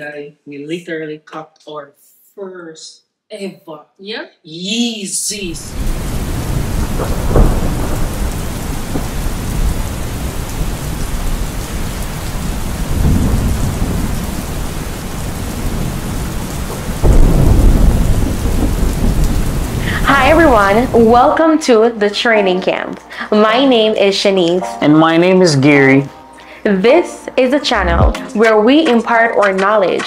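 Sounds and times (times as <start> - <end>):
steady rain: 5.3 - 21.4
rolling thunder: 5.6 - 21.2.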